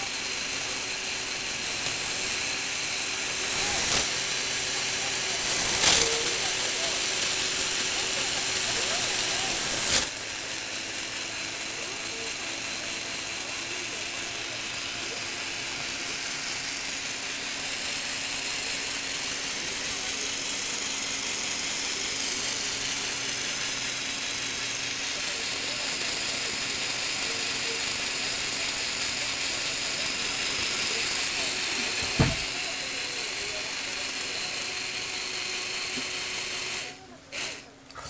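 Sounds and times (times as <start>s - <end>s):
electric motor hum: 0.0s - 38.0s
whir of meshing plastic gears: 0.0s - 38.0s.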